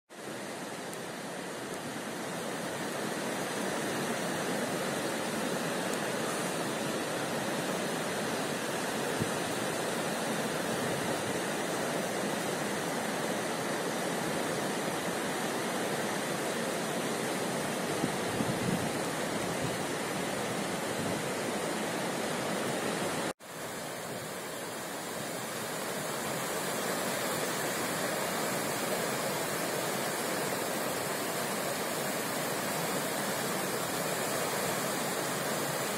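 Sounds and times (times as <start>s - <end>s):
river water rushing: 0.1s - 35.9s.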